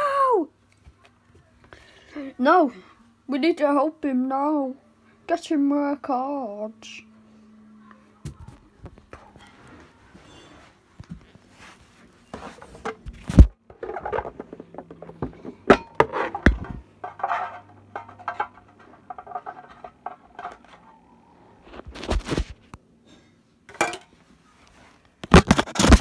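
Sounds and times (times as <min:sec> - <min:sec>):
metal tin and cards handled: 0:15.7 - 0:20.9.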